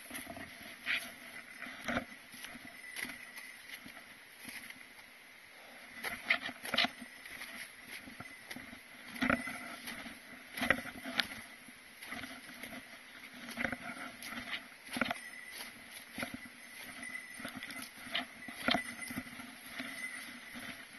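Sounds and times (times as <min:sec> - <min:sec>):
footsteps on trail: 0:00.0 - 0:20.9.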